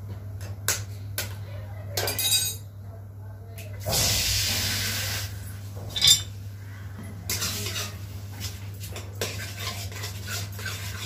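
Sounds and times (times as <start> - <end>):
spatula scraping a metal pan: 7.3 - 11.0.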